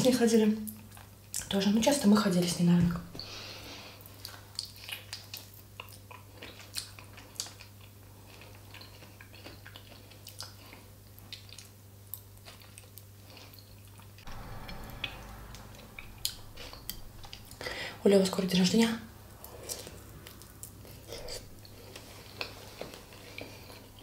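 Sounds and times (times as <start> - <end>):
person chewing food: 4.0 - 14.2, 19.6 - 24.0
low rumble: 14.2 - 22.1.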